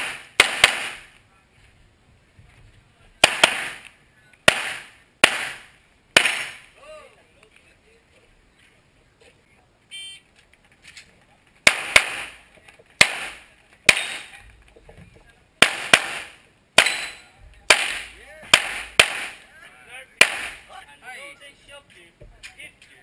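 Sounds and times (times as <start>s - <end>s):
handgun shots: 0.0s - 1.0s, 3.2s - 3.9s, 4.5s - 5.6s, 11.7s - 12.4s, 13.0s - 14.3s, 15.6s - 19.4s, 20.2s - 20.6s.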